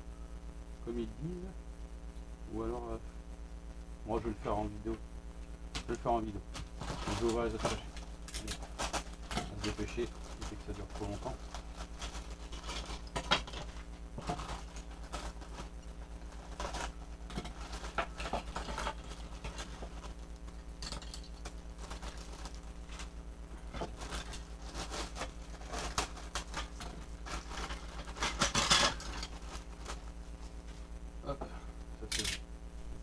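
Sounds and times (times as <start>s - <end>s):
low hum: 0.0s - 33.0s
plastic bags crinkling: 5.8s - 30.7s
plastic toy parts rattling: 6.8s - 15.7s, 23.9s - 29.6s.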